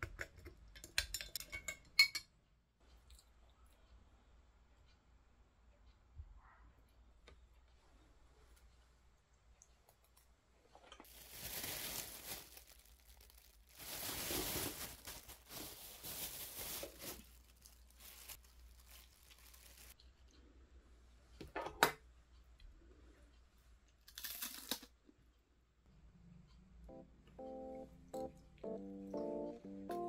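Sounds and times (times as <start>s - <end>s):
plastic bag crinkling: 11.0s - 20.0s.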